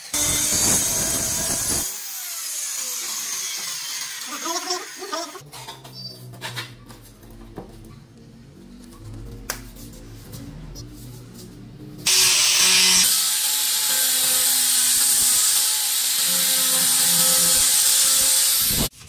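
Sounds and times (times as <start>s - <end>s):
angle grinder whining: 0.0s - 5.4s, 12.0s - 18.9s.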